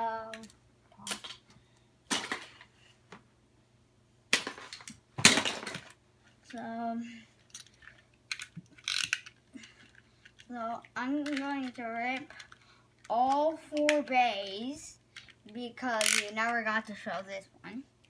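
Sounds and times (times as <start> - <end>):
plastic parts rustling: 7.3 - 13.9.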